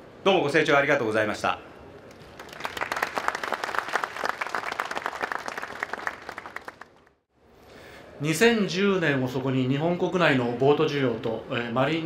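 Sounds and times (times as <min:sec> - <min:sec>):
audience applauding: 0:02.2 - 0:07.2.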